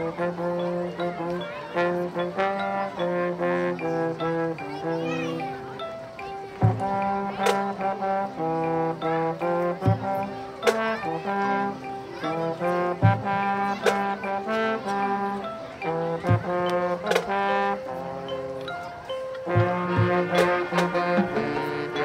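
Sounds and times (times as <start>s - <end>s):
marching band brass melody: 0.0s - 22.0s
sharp percussion hits: 19.5s - 22.0s.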